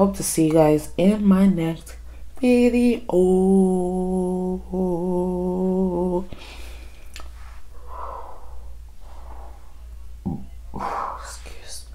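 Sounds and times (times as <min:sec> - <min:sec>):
woman humming: 0:02.4 - 0:06.4
soft breaths: 0:06.3 - 0:10.1, 0:10.8 - 0:11.9.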